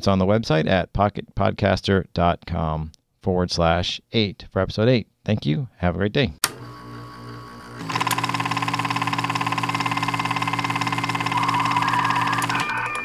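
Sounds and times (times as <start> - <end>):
film projector clattering: 7.6 - 12.8.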